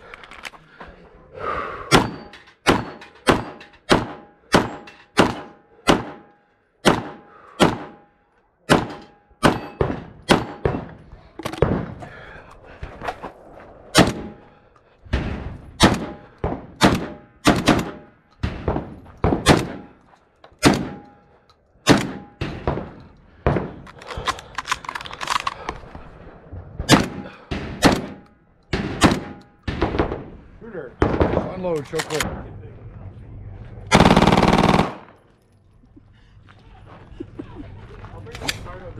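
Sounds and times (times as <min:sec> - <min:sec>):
close gunshots: 0:01.9 - 0:08.0, 0:08.7 - 0:11.0, 0:14.0 - 0:14.4, 0:15.2 - 0:19.9, 0:20.6 - 0:21.1, 0:21.8 - 0:23.8, 0:26.9 - 0:30.3, 0:33.9 - 0:35.2.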